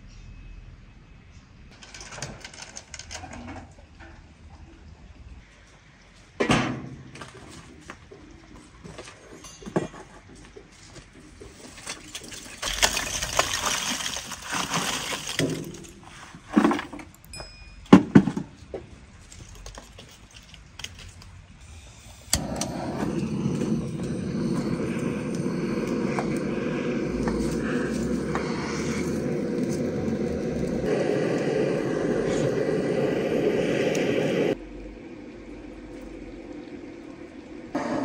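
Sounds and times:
charcoal pouring and clattering: 0:11.6 - 0:17.2
steady low rushing noise: 0:22.4 - 0:37.8.

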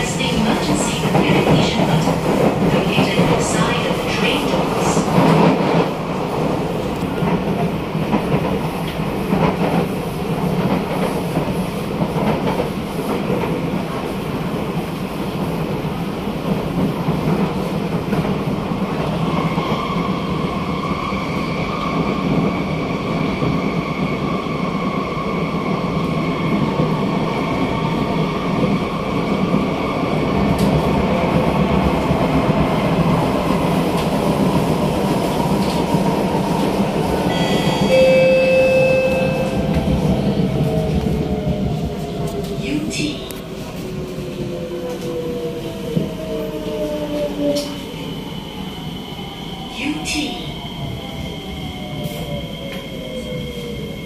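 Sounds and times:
passing train rush: 0:00.0 - 0:54.0
train interior rumble: 0:00.0 - 0:54.0
steady high-pitched tone: 0:37.3 - 0:39.8.

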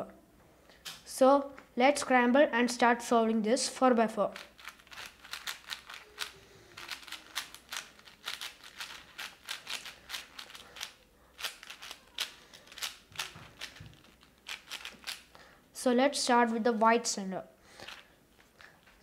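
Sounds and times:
puzzle cube layers clicking: 0:04.4 - 0:15.3.

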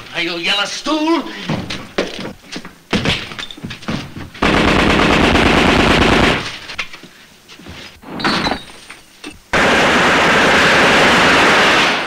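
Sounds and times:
submachine gun burst: 0:04.4 - 0:06.6, 0:09.5 - 0:12.0.

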